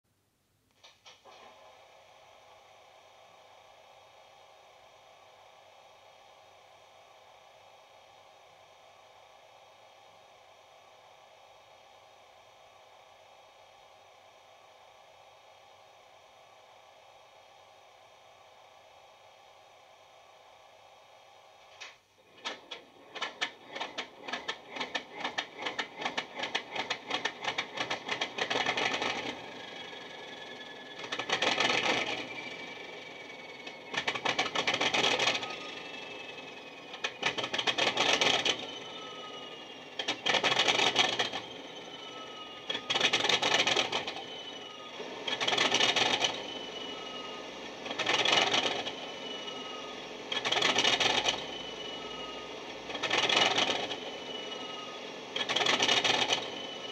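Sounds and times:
diesel engine cranking and running: 22.3s - 56.9s.

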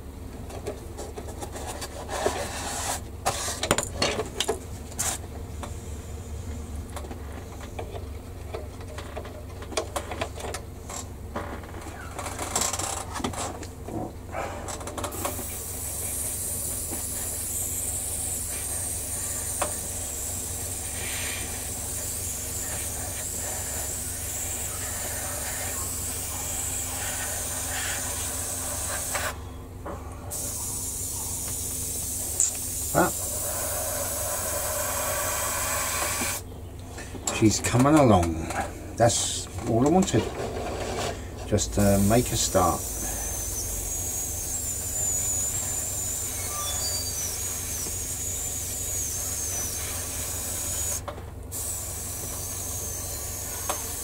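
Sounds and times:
airbrush hissing: 15.2s - 29.4s, 30.3s - 36.4s, 41.8s - 54.0s.

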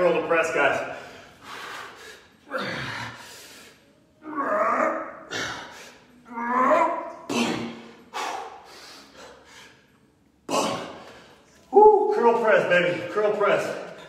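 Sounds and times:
man grunting: 2.5s - 3.2s, 10.5s - 11.0s.

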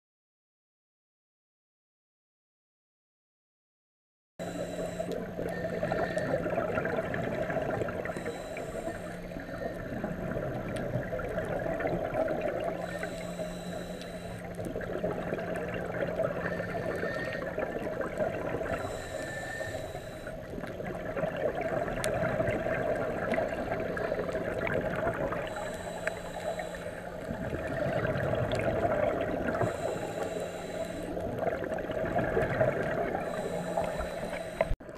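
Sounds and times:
diver breathing through regulator: 4.4s - 7.0s, 7.9s - 10.6s, 12.5s - 15.0s, 16.0s - 18.0s, 18.6s - 20.5s, 22.9s - 31.7s, 32.5s - 34.8s.

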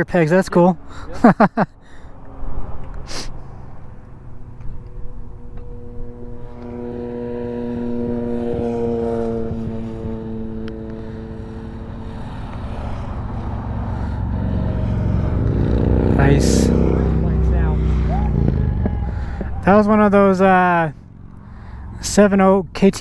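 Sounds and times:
engine droning hum: 0.0s - 23.0s
low outdoor rumble: 0.0s - 23.0s
second engine approaching: 0.0s - 23.0s.

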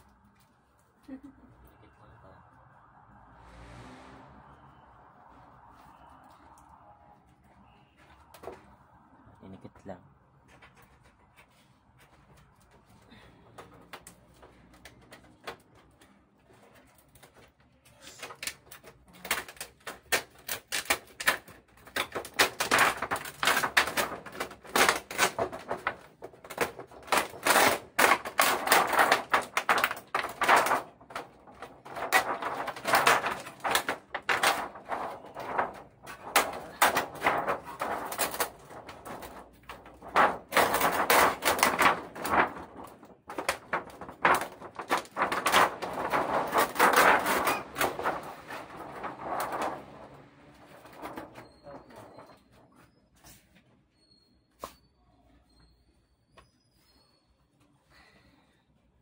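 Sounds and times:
plastic sheet crinkling: 13.8s - 52.7s.

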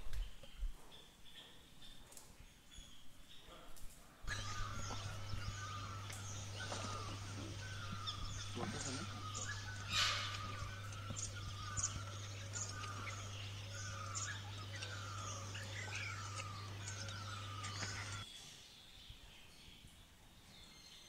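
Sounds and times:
birds calling and chirping: 0.0s - 21.0s
low hum: 4.3s - 18.2s.

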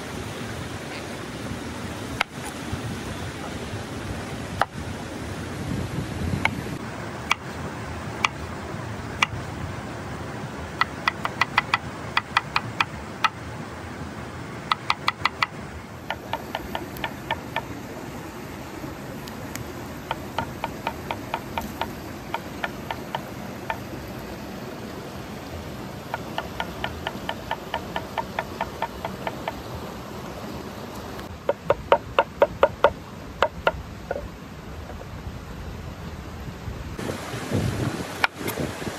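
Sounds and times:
steady hiss: 0.0s - 38.9s
evenly paced ticks: 10.8s - 13.4s, 14.7s - 17.8s, 19.1s - 24.4s, 26.0s - 29.8s.

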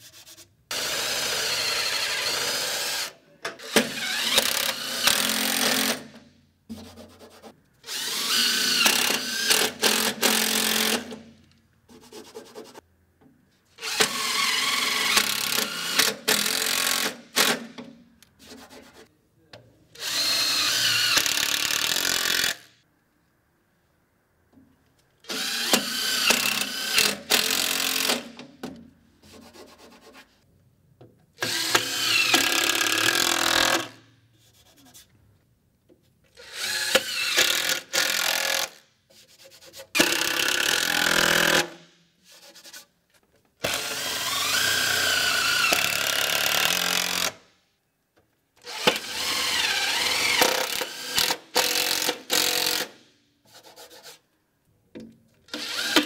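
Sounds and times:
power drill driving screws: 0.7s - 6.1s, 7.9s - 11.1s, 20.0s - 22.7s, 25.3s - 28.3s, 31.4s - 33.9s, 36.4s - 38.8s, 40.0s - 41.7s, 43.6s - 47.4s, 48.6s - 53.0s, 55.5s - 56.0s.

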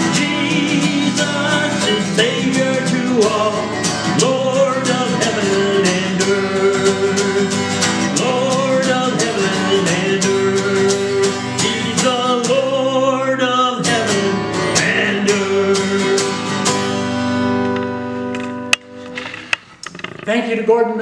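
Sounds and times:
man singing: 0.0s - 16.6s
acoustic guitar strumming: 0.0s - 20.6s.

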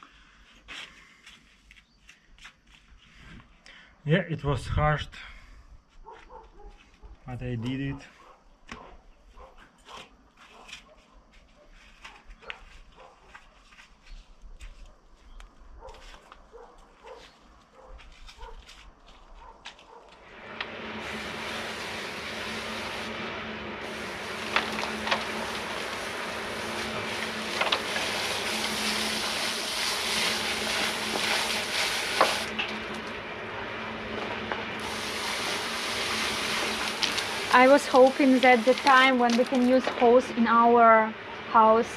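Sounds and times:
water spraying from hose: 20.2s - 33.2s, 33.8s - 41.0s
low hum: 20.2s - 41.9s.

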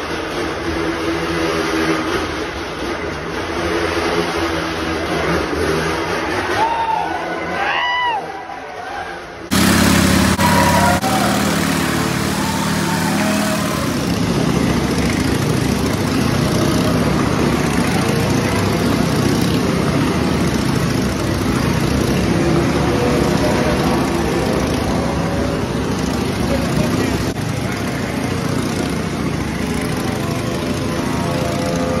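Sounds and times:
motorcycle engines revving: 9.5s - 32.0s.

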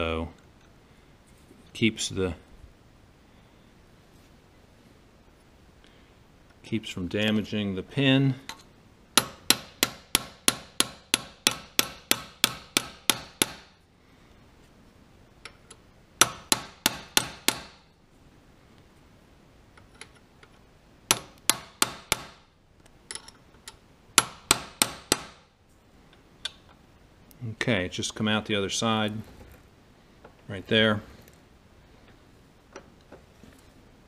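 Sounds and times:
hammer striking metal punch: 9.2s - 13.7s, 16.2s - 17.8s, 21.1s - 22.4s, 24.2s - 25.4s.

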